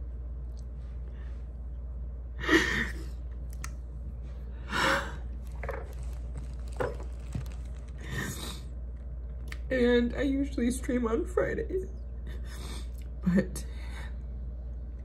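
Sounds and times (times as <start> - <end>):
woman sobbing: 2.4 - 3.2.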